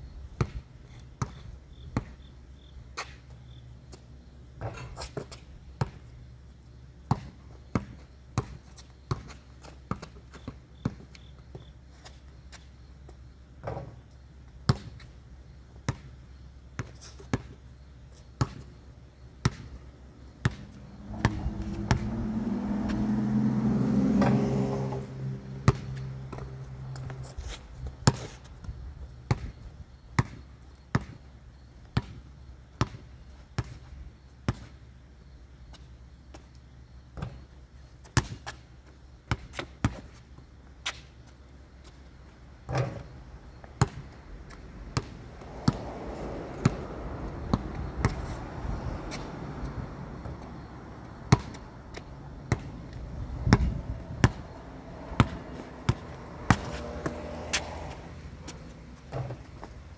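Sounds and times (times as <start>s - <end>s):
basketball bouncing: 7.1s - 10.2s, 19.4s - 19.8s, 20.4s - 23.2s, 25.6s - 28.4s, 29.3s - 29.6s, 30.2s - 31.2s, 43.8s - 48.3s, 51.3s - 59.8s
passing vehicle: 20.6s - 28.0s, 44.6s - 59.9s.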